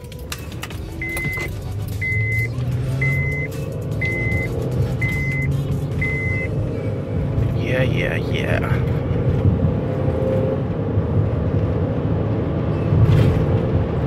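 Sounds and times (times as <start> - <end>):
car engine accelerating: 0.0 - 14.0
road noise: 0.0 - 14.0
dashboard warning chime beeps: 0.9 - 6.5.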